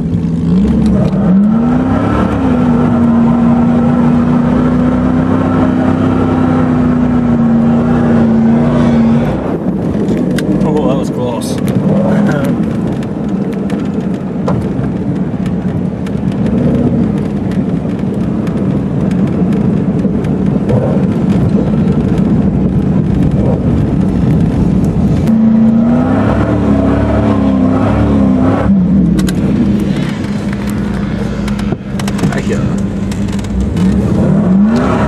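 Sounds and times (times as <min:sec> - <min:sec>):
vehicle engine rumbling: 0:00.0 - 0:35.0
small rattles in cab: 0:09.6 - 0:25.3, 0:29.0 - 0:34.3.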